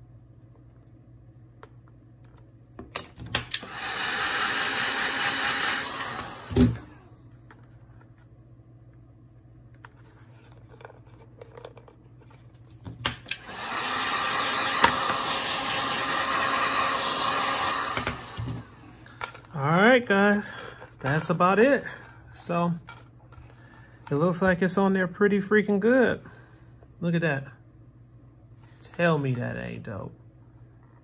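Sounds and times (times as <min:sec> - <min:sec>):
heat gun blowing: 0:03.5 - 0:07.1, 0:13.3 - 0:19.4.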